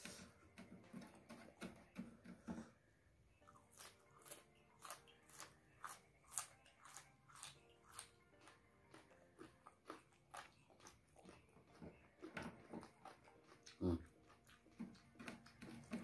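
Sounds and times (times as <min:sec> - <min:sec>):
chewing crunchy chili peppers: 0:03.4 - 0:16.0
soft mouth sounds: 0:12.9 - 0:15.0.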